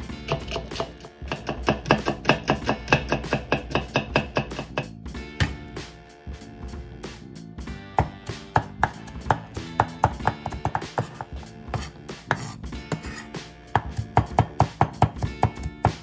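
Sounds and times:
background music: 0.0 - 16.0
cleaver chopping on wooden board: 0.2 - 5.6, 8.0 - 13.2, 13.8 - 16.0.

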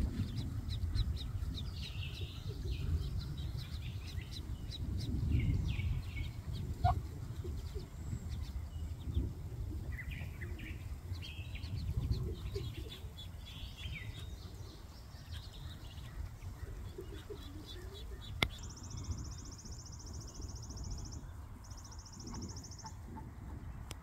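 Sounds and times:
ducklings peeping: 0.0 - 23.9
steady low rumble: 0.0 - 24.0.

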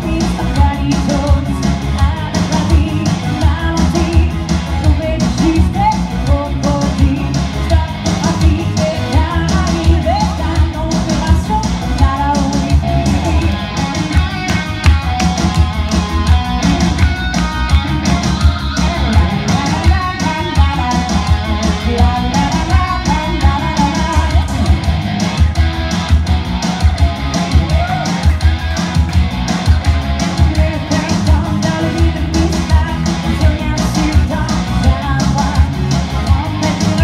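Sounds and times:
woman singing into a microphone: 0.0 - 14.1, 18.6 - 24.8, 30.4 - 37.0
electric guitar: 0.0 - 37.0
steady heavy beat: 0.0 - 37.0.

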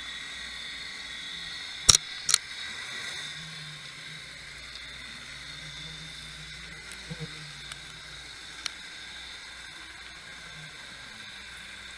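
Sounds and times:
faint high electronic whine: 0.0 - 11.9
steady hiss: 0.0 - 11.9
camera clicks: 1.9 - 2.5.

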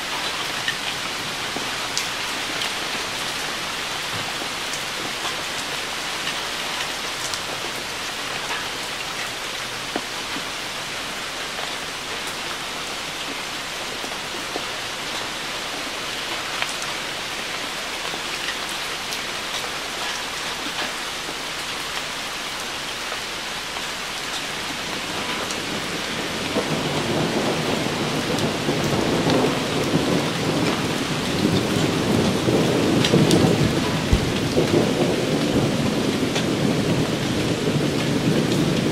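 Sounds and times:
rain on leaves and puddle: 0.0 - 38.9
low thunder rumble: 24.7 - 38.9.

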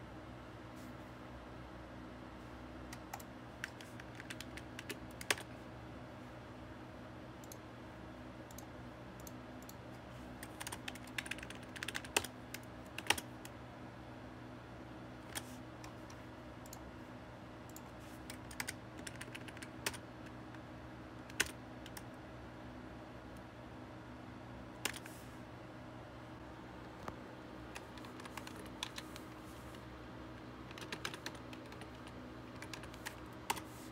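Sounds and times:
keyboard and mouse clicking: 2.9 - 5.5, 10.4 - 13.6, 17.7 - 20.4, 21.3 - 22.0, 24.8 - 25.1, 27.0 - 29.4, 30.7 - 33.7.

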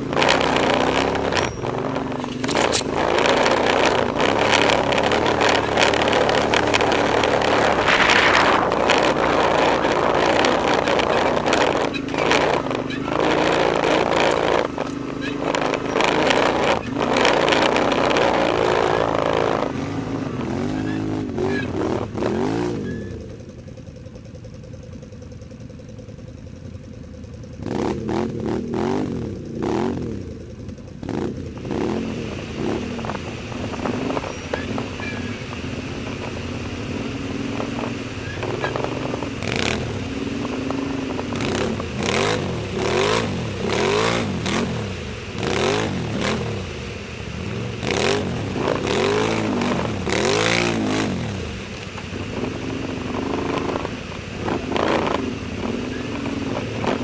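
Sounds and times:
atv engine revving: 0.0 - 57.0
branches slapping against machine: 2.2 - 9.3.

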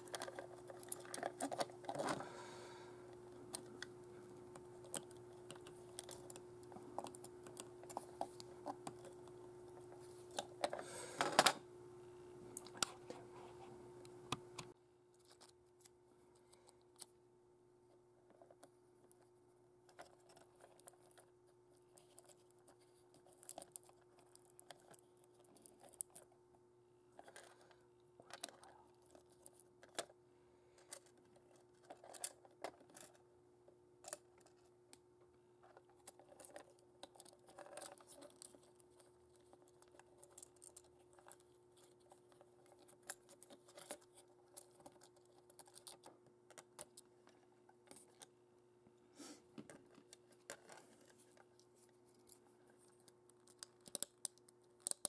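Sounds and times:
plastic parts clicking and rustling: 0.0 - 2.3, 3.4 - 11.6, 30.8 - 33.2, 35.6 - 48.3, 49.6 - 55.0
faint steady hum: 0.0 - 55.0.

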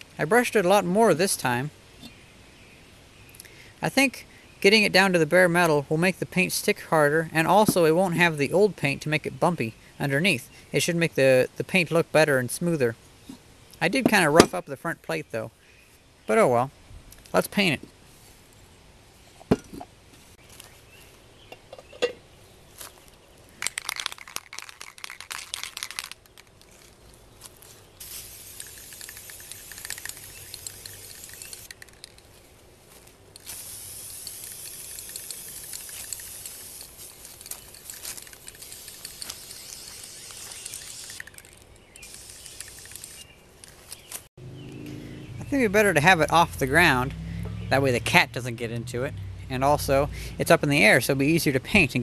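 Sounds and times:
spray can rattling: 23.6 - 26.9, 28.0 - 32.3, 33.4 - 43.2
spray can hissing: 28.0 - 32.1, 33.4 - 43.2.

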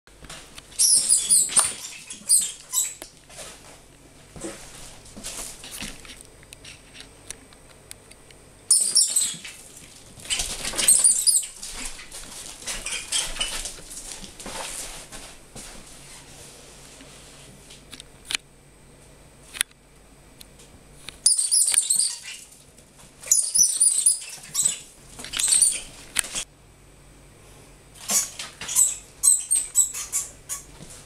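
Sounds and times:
paws scuffling on wooden floor: 0.3 - 6.2, 8.8 - 16.6.

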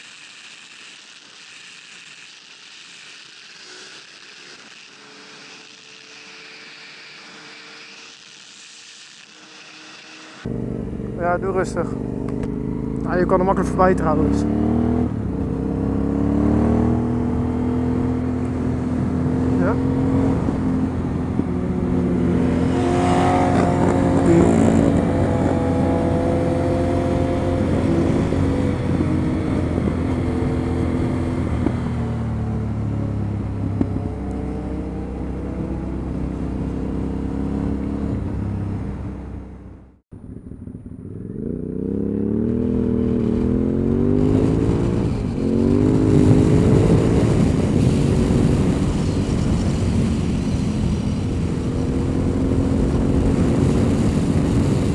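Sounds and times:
motorcycle engine: 0.0 - 54.9
wind noise: 13.5 - 54.9.

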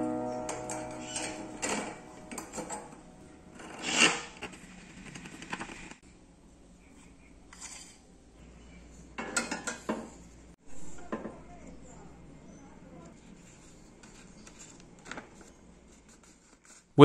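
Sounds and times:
metal scraping on workbench: 3.6 - 4.6.

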